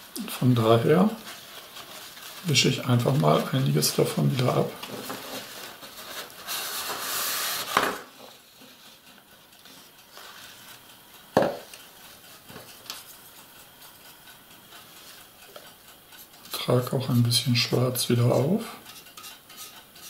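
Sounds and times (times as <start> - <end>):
paper towel rustling: 0.0 - 9.0.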